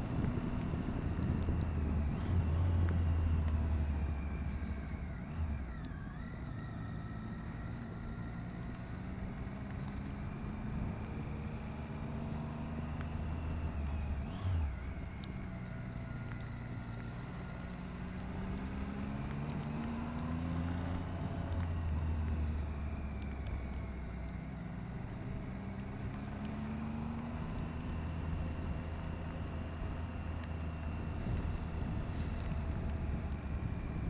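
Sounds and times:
wind rush on microphone: 0.0 - 2.6, 31.1 - 34.0
motorcycle engine revving: 0.0 - 34.0.

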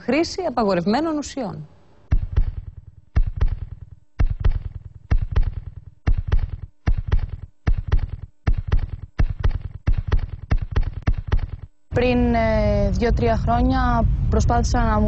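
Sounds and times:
faint steady hum: 0.0 - 15.0
deep thuds: 2.1 - 11.8.

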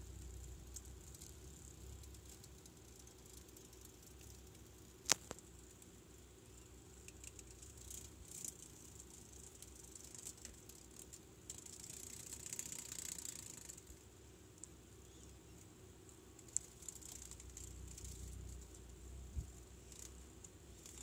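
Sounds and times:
dry rustling and crackling: 0.2 - 5.9.

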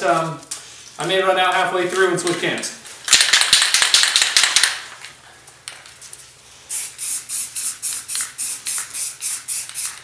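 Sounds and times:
spray can rattling when shaken: 3.1 - 4.9, 6.7 - 10.0
spray paint hissing in short pulses: 6.7 - 10.0.

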